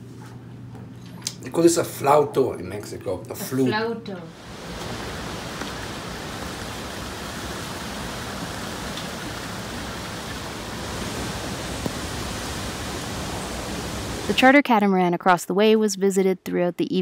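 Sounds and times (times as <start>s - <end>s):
rain: 4.3s - 14.5s.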